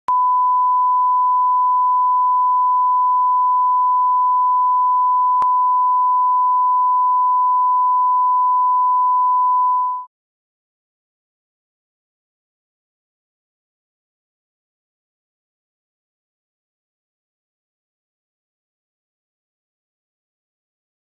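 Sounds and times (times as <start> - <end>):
sine test tone: 0.1 - 10.1.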